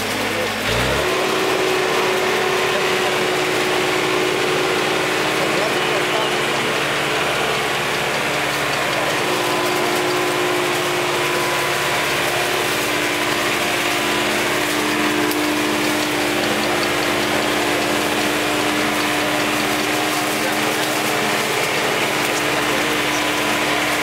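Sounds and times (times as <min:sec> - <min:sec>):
tractor engine humming: 0:00.0 - 0:24.0
cutter clattering through canes: 0:00.6 - 0:03.6.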